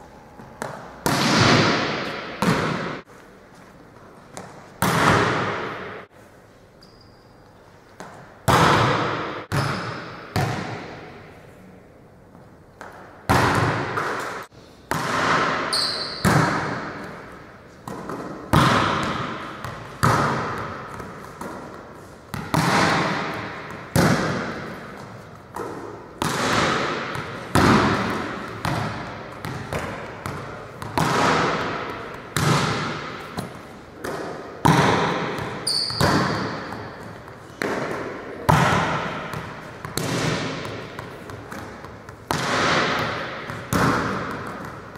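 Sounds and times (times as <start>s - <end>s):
volleyball slaps echoing: 0.4s - 3.1s, 4.3s - 6.1s, 8.0s - 11.4s, 12.7s - 44.9s
short high squeaks: 6.8s - 7.5s, 35.6s - 36.1s.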